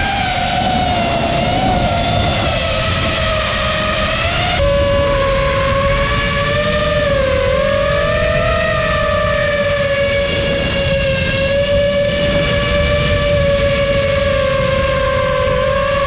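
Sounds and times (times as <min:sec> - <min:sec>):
model aircraft motor whining: 0:00.0 - 0:16.0
wind rushing over microphone: 0:00.0 - 0:16.0.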